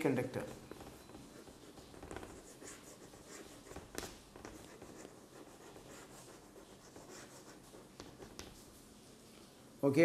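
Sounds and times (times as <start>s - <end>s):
chalk scratching on chalkboard: 0.4s - 8.8s.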